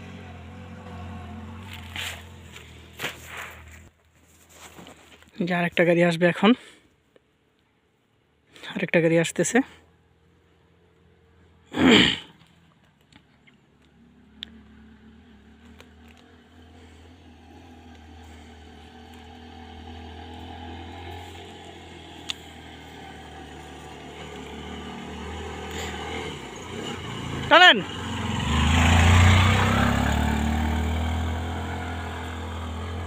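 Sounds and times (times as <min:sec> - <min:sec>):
motorcycle engine approaching: 0:00.0 - 0:04.0, 0:12.3 - 0:33.0.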